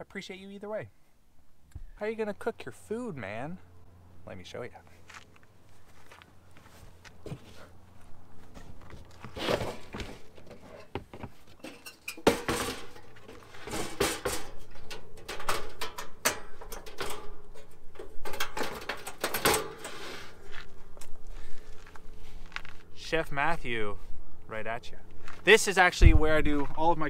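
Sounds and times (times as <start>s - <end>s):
knocks and clunks: 8.7s - 19.9s
camp stove set down: 9.2s - 20.6s.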